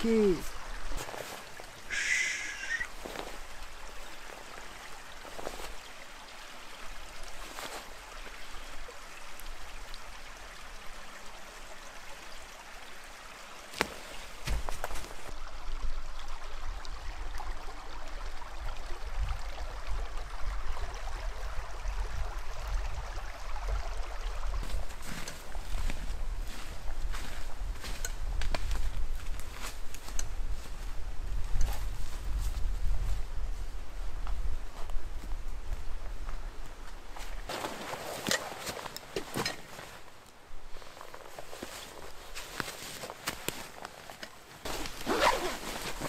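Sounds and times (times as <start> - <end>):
stream flowing: 0.0 - 31.4, 33.3 - 46.0.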